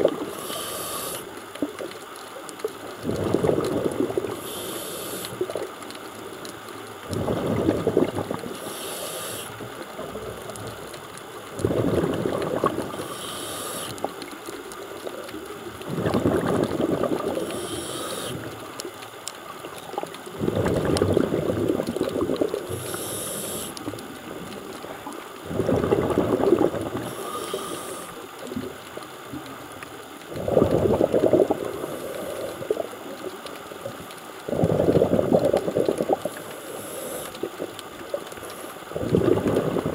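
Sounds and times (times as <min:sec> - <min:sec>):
exhaled bubbles underwater: 0:00.0 - 0:39.9
regulator inhale hiss: 0:00.2 - 0:01.4, 0:04.3 - 0:05.6, 0:08.4 - 0:09.8, 0:12.8 - 0:14.2, 0:17.2 - 0:18.7, 0:22.6 - 0:24.0, 0:27.0 - 0:28.6, 0:31.7 - 0:33.0, 0:36.2 - 0:39.0.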